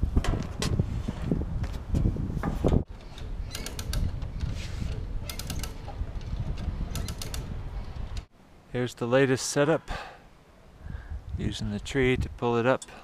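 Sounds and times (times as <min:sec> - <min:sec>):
hand ratchet clicking: 0:03.0 - 0:08.3.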